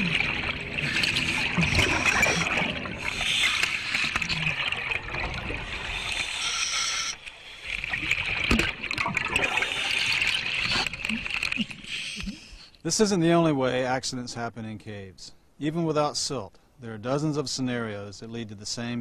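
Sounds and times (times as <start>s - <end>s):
scuba regulator exhaust bubbles: 0.0s - 11.5s.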